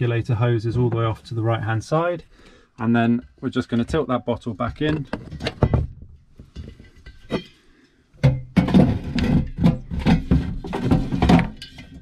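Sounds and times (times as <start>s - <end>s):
gas bottle knocking and scraping: 3.2s - 12.0s.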